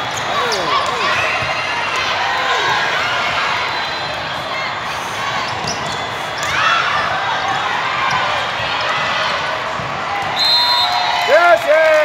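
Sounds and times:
many voices: 0:00.0 - 0:10.4
volleyballs hit and bouncing: 0:05.5 - 0:10.4.

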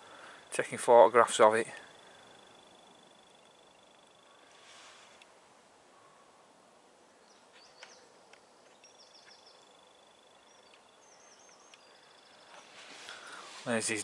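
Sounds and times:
faint clicks: 0:05.1 - 0:05.4, 0:07.6 - 0:09.4, 0:10.6 - 0:13.2
small bird singing: 0:07.1 - 0:14.0.

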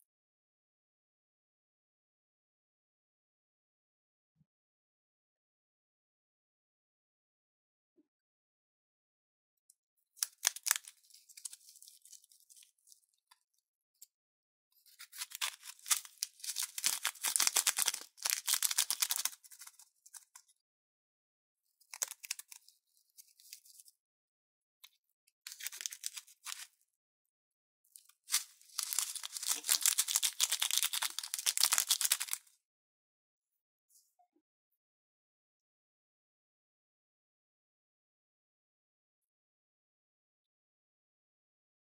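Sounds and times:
plastic piping bag crinkling: 0:10.2 - 0:12.7, 0:14.9 - 0:20.2, 0:22.0 - 0:22.6, 0:25.5 - 0:26.7, 0:28.2 - 0:32.5
foam beads crackling: 0:15.1 - 0:19.7, 0:28.3 - 0:32.4.

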